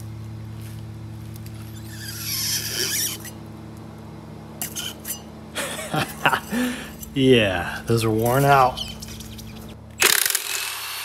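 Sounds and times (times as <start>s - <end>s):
shock absorber squeaky hiss: 1.6s - 3.4s, 4.6s - 5.2s.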